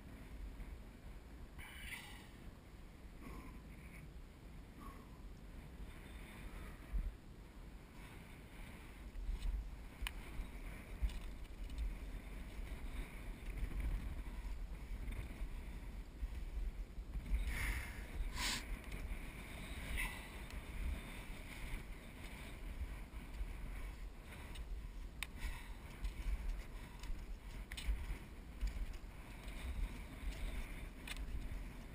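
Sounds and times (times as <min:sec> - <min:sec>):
wind rumbling on microphone: 0:00.0 - 0:31.9
skis hissing over snow: 0:17.5 - 0:18.7
skis scraping: 0:18.3 - 0:18.6.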